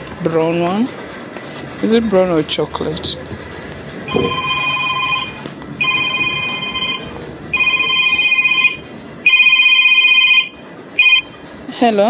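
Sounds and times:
phone ringing: 0:04.1 - 0:11.5.

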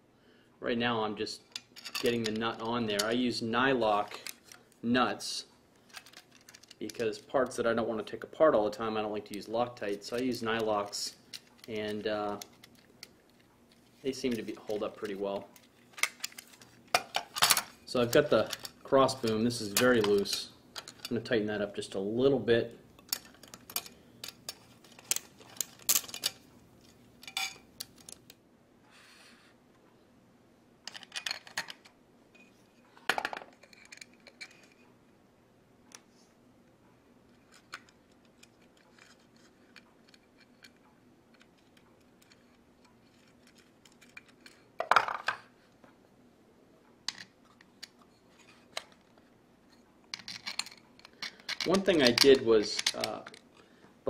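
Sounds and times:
metallic clinks of screws and nuts: 0:01.6 - 0:02.4.

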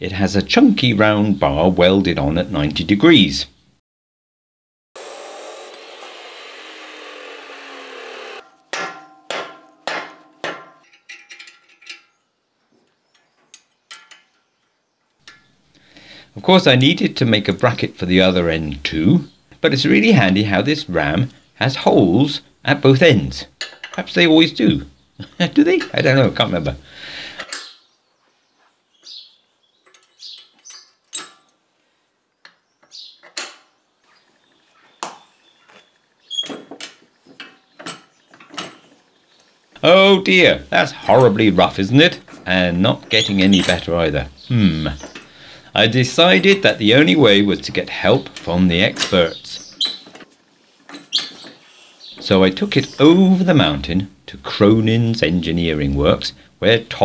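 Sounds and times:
mallet knocking metal with ring: 0:08.4 - 0:10.9
spanners clicking on metal: 0:08.4 - 0:12.2, 0:13.1 - 0:14.5.

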